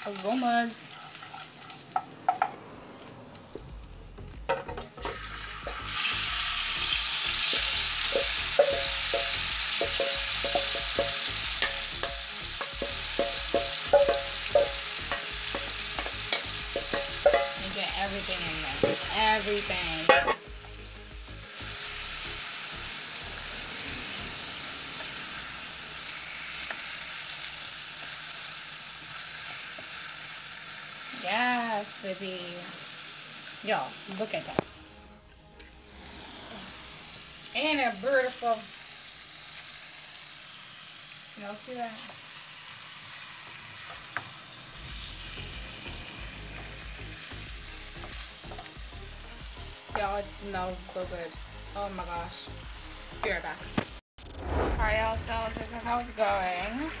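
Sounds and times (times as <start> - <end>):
food sizzling in a frying pan: 0.0 - 3.6, 4.4 - 34.9, 35.9 - 54.0, 54.9 - 57.0
utensil scraping against pan: 7.5 - 17.8.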